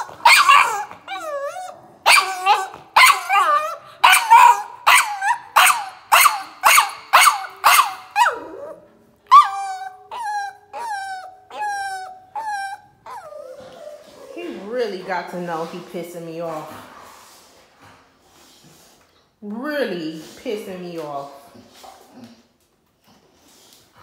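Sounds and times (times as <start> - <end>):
puppy barking behind door: 0.0 - 8.6, 9.3 - 14.1
puppy yelping: 0.0 - 14.4.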